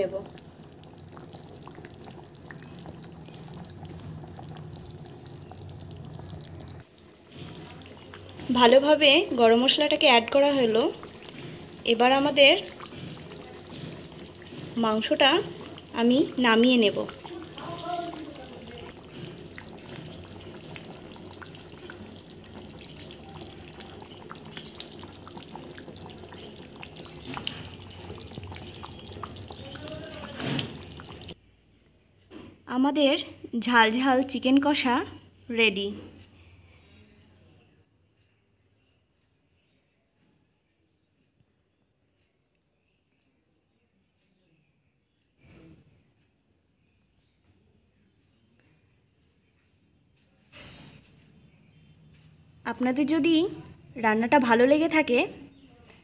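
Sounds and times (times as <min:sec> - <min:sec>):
curry bubbling in a pan: 0:00.0 - 0:31.4.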